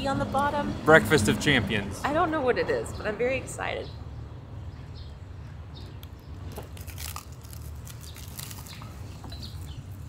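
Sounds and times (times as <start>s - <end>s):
pastry crunching: 6.0s - 10.0s.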